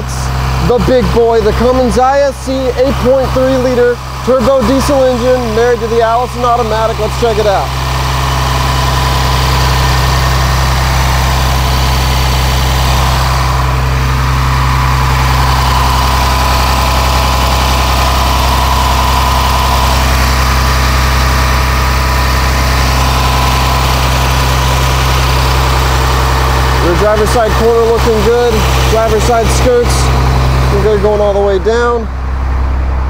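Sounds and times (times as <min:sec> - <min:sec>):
diesel bus engine idling: 0:00.0 - 0:33.0
thin high whine: 0:08.4 - 0:33.0.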